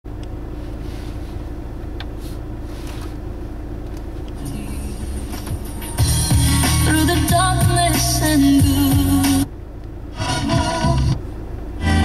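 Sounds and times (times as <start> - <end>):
car engine idling: 0.1 - 12.0.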